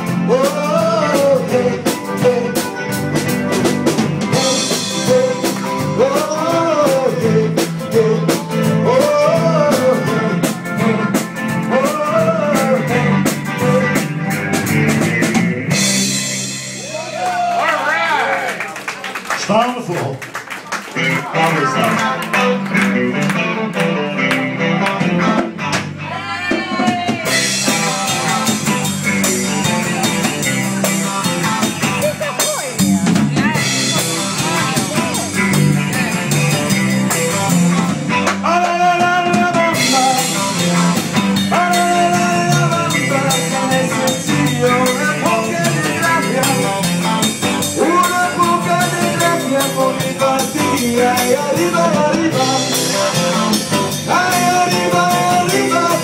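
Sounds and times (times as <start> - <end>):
person singing lead vocal: 0.0 - 3.4, 4.3 - 15.4, 21.0 - 22.9, 26.0 - 31.3, 31.9 - 36.8, 38.2 - 56.0
drum kit beat: 0.0 - 17.7, 20.8 - 56.0
electric guitars: 0.0 - 18.6, 20.5 - 56.0
rock band playing: 0.0 - 56.0.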